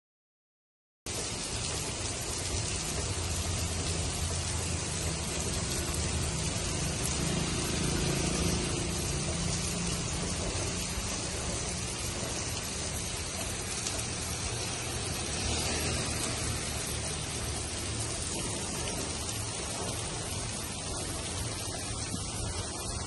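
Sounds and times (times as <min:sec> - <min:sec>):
heavy rain pouring on road: 0:01.1 - 0:23.0.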